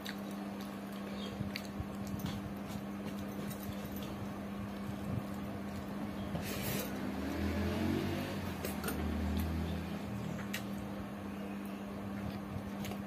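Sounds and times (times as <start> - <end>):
person eating and chewing: 0.0 - 5.9
steady low hum: 0.0 - 13.0.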